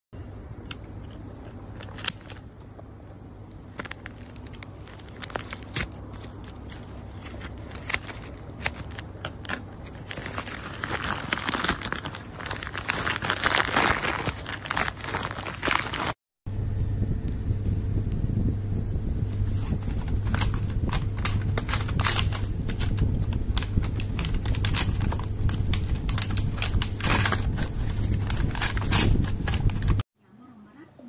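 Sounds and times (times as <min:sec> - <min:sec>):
plastic packaging crinkling: 0:00.6 - 0:16.2, 0:19.5 - 0:30.0.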